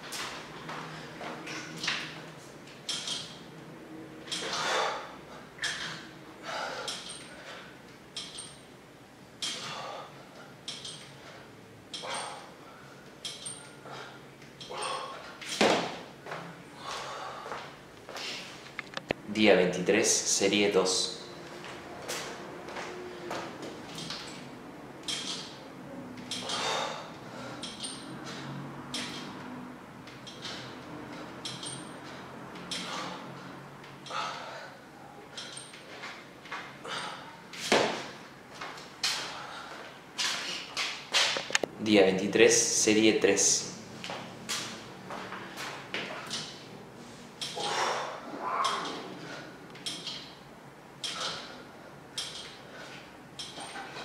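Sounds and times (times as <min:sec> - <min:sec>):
metal bar clinks and creaks: 0:02.8 - 0:03.4, 0:04.2 - 0:04.7, 0:05.6 - 0:06.1, 0:06.8 - 0:08.8, 0:09.4 - 0:09.9, 0:10.6 - 0:12.5, 0:13.2 - 0:16.0, 0:23.9 - 0:25.6, 0:26.2 - 0:34.4, 0:35.3 - 0:37.8, 0:45.6 - 0:46.7, 0:47.4 - 0:50.4, 0:51.0 - 0:54.0
man breathing hard: 0:04.4 - 0:05.6, 0:06.4 - 0:07.8, 0:09.6 - 0:10.6, 0:13.7 - 0:15.4, 0:16.7 - 0:18.6, 0:26.4 - 0:27.9, 0:32.7 - 0:35.6, 0:39.1 - 0:40.7, 0:47.5 - 0:48.3.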